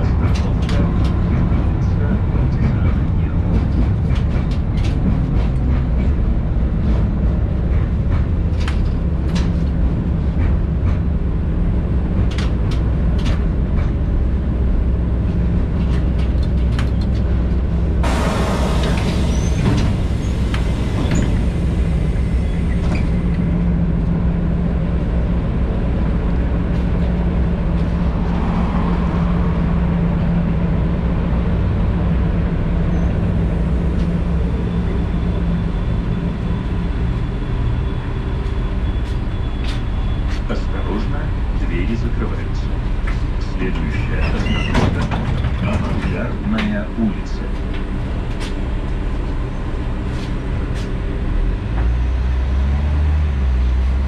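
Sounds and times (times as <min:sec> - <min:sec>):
standing tram low hum: 0:00.0 - 0:54.0
tram running rumble: 0:00.0 - 0:54.0
loud hiss of air: 0:18.0 - 0:22.5.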